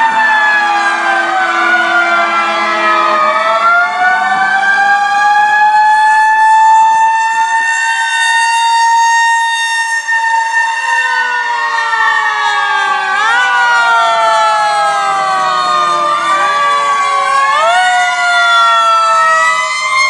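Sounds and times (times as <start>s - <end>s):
fire sirens wailing: 0.0s - 20.0s.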